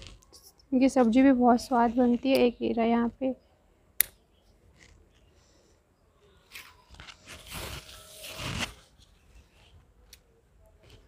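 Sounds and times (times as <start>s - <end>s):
rustling and crunching of vegetables: 6.5s - 9.7s.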